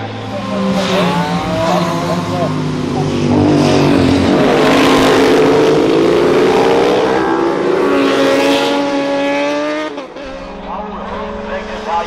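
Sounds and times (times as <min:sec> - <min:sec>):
racing motorcycles passing: 0:00.0 - 0:12.0.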